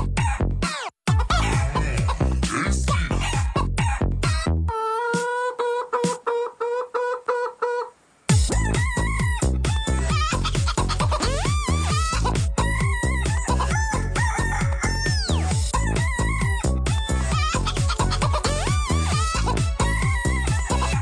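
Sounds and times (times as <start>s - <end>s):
electronic dance music: 1.1s - 3.6s, 8.3s - 21.0s
sampled chicken clucks: 1.2s - 2.2s, 4.8s - 8.0s
sampled rooster crows: 13.4s - 15.5s.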